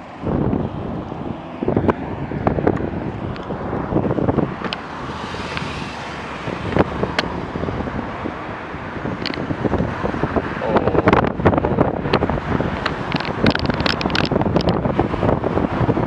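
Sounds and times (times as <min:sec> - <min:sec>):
cars driving past: 0:00.0 - 0:16.0
wind rumbling on microphone: 0:00.0 - 0:16.0
sharp clicks: 0:12.8 - 0:14.8.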